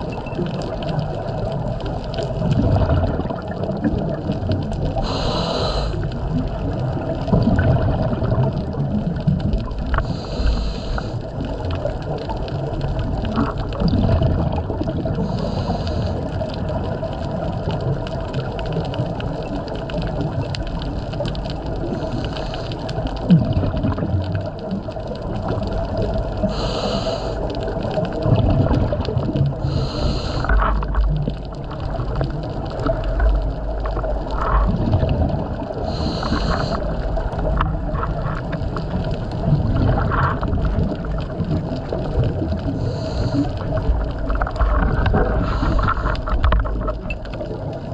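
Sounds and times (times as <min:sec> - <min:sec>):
exhaled bubbles gurgling: 0:00.0 - 0:47.9
regulator inhalation hiss: 0:05.0 - 0:06.0, 0:10.0 - 0:11.2, 0:15.3 - 0:16.2, 0:26.4 - 0:27.4, 0:29.6 - 0:30.6, 0:35.9 - 0:36.9, 0:42.8 - 0:43.6.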